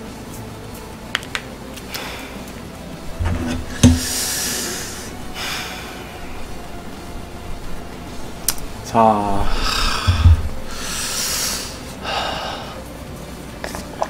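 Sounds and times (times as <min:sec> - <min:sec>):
breathy exhalations: 0:03.9 - 0:06.4, 0:09.4 - 0:12.8.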